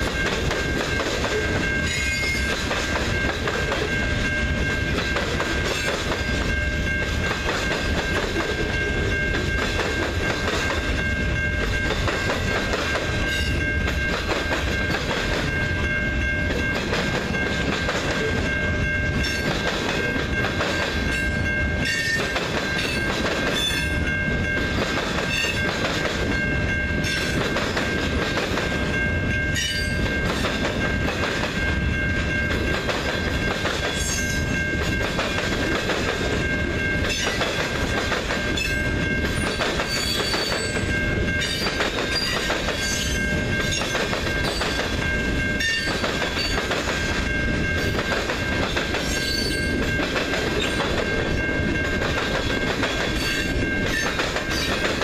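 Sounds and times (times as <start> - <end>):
train wheels clattering on rails: 0.0 - 55.0
high-pitched ringing tone: 0.1 - 2.6.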